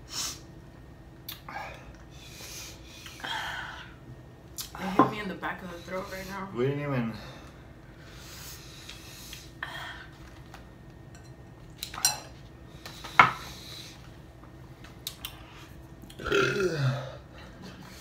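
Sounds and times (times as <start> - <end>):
tableware clink: 11.1 - 11.4
person burping: 16.1 - 17.2.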